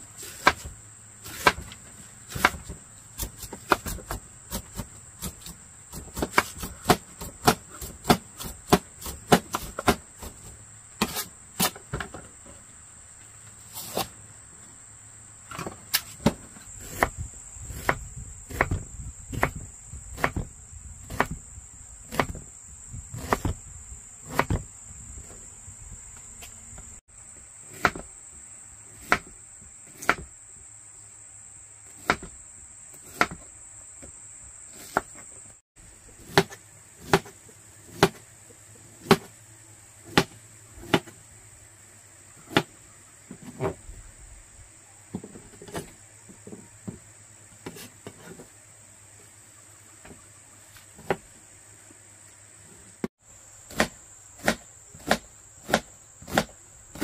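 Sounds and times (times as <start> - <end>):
knife chopping on cutting board: 1.3 - 10.4, 23.2 - 23.6, 33.0 - 33.4, 36.2 - 37.3, 37.9 - 38.2, 39.0 - 39.3, 53.7 - 57.0.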